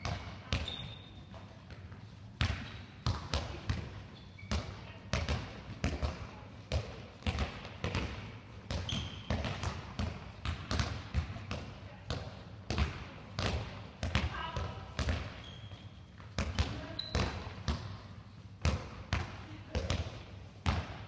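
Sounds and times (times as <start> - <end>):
balls thudding in a hall: 0.0 - 21.0
shoe squeak on court: 0.6 - 1.2, 4.1 - 4.6, 8.8 - 9.3, 15.4 - 15.9, 16.9 - 17.4.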